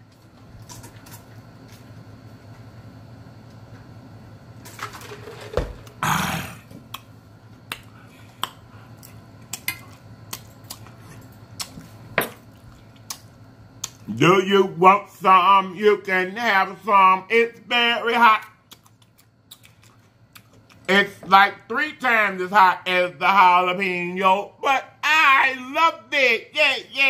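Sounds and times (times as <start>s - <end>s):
steady low hum: 0.0s - 27.0s
lip smacks and chewing clicks: 6.9s - 14.1s, 18.6s - 20.9s.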